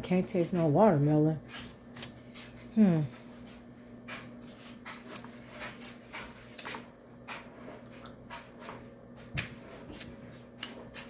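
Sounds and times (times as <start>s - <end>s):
low appliance hum: 0.0s - 11.0s.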